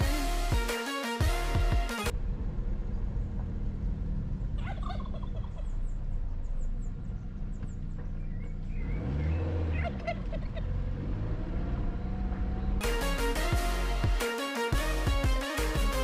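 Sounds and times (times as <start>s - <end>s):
fowl gobbling calls: 4.6s - 5.9s.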